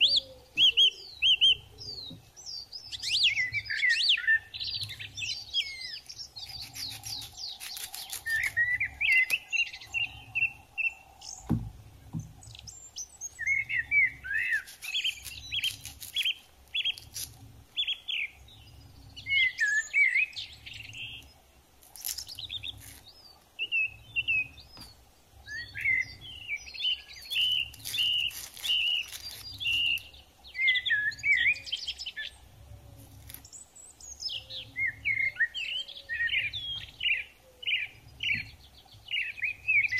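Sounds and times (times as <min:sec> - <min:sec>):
small birds chirping: 0:00.0 - 0:39.9
low thud: 0:11.4 - 0:12.4.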